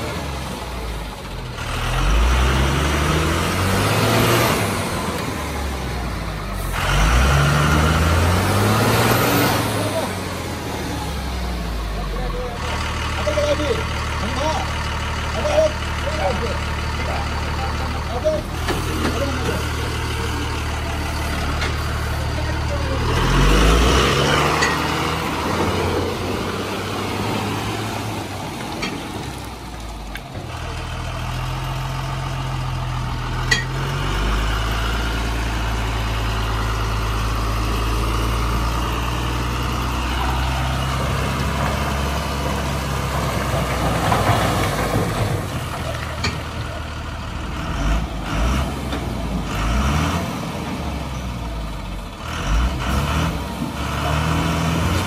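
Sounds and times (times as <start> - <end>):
truck diesel engine under load: 0.0 - 55.0.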